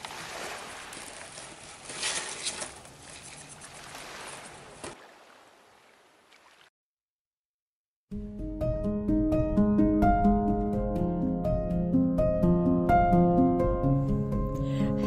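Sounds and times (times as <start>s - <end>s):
water washing against slate shore: 0.0s - 6.7s.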